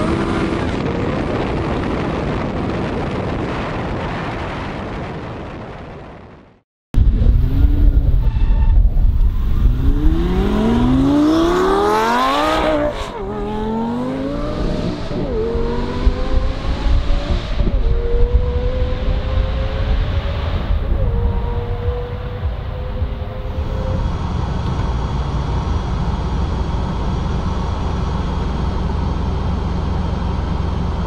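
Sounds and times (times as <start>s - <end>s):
sports car engine accelerating: 7.0s - 31.0s.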